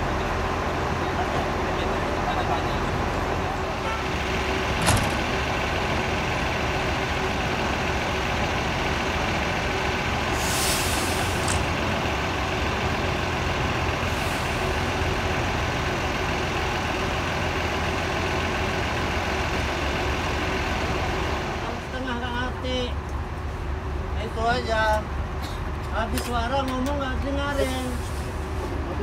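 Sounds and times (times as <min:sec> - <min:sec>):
bus engine idling: 0:00.0 - 0:29.0
air hisses: 0:10.3 - 0:11.5.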